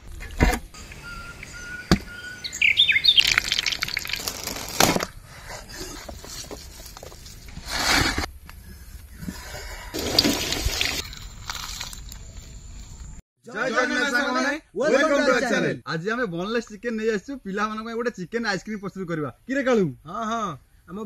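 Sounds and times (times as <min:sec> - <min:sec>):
birds chirping: 0:00.7 - 0:04.2.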